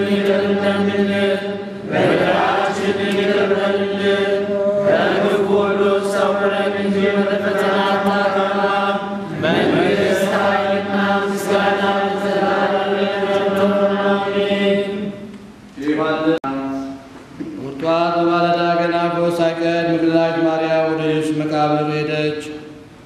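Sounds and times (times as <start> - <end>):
congregation chanting: 0.0 - 17.0.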